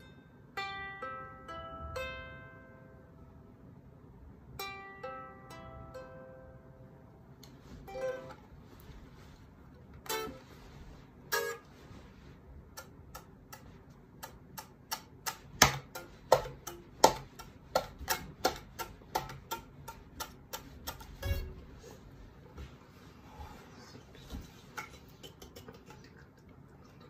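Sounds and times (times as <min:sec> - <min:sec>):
ukulele plucked notes: 0:00.0 - 0:03.3, 0:04.5 - 0:22.0
percussive taps on ukulele body: 0:14.3 - 0:21.5.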